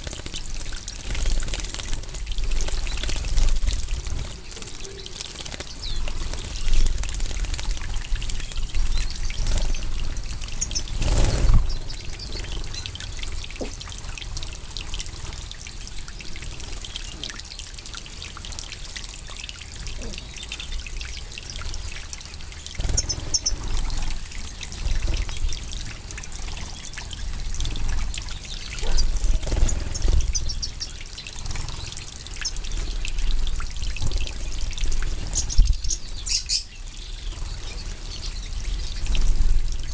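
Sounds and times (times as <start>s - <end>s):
birds splashing in water: 0.0s - 38.0s.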